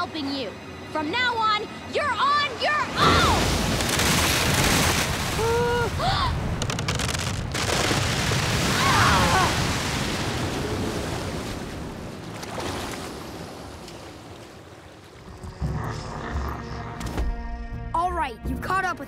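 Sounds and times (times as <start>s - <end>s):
ocean wave surging and crashing: 2.5s - 15.1s
ice cracking: 3.4s - 5.6s, 6.3s - 9.5s.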